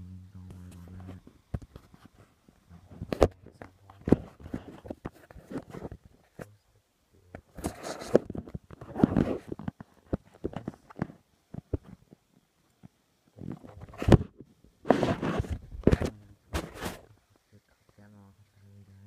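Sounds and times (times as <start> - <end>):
rustling: 0.4 - 19.0
fabric rubbing: 7.6 - 9.6, 14.8 - 17.1.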